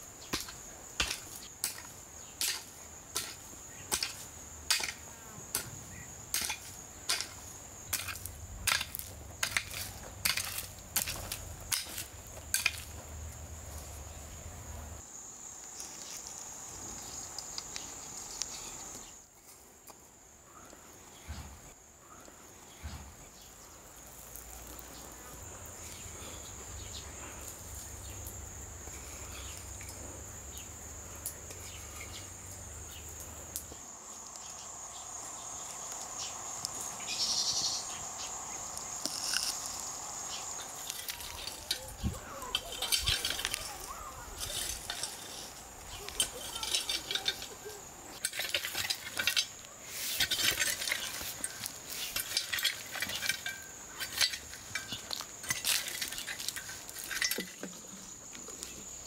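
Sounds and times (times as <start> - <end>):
insects chirring: 0.0 - 59.0
hoe chopping into stony soil: 0.2 - 13.0.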